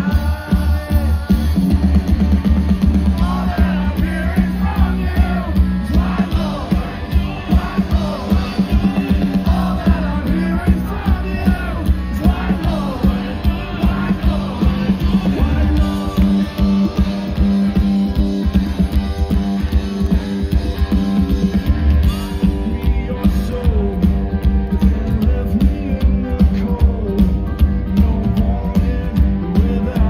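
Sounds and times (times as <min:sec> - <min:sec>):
person singing: 0:00.0 - 0:02.0, 0:03.1 - 0:17.0
drums: 0:00.0 - 0:30.0
electric guitar: 0:00.0 - 0:30.0
upright bass: 0:00.0 - 0:30.0.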